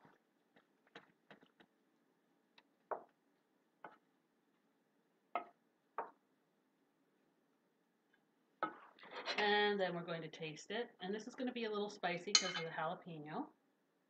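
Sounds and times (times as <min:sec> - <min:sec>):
wooden spoon knocking steel pot: 0:12.3 - 0:12.7.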